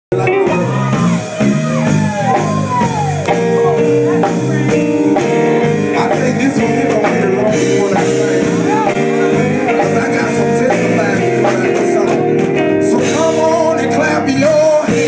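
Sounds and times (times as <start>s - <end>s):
gospel group singing with band: 5.9s - 15.0s.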